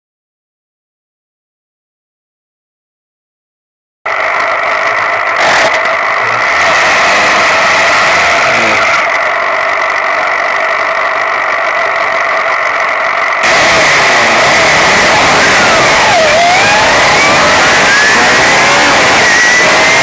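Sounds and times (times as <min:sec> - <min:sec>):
racing car engine running: 0:04.1 - 0:20.0.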